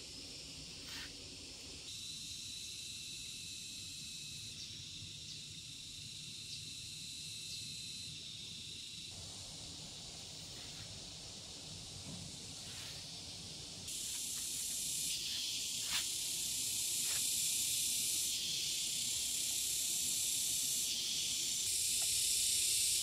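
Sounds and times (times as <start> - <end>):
steady high-pitched hiss: 0.0 - 23.0.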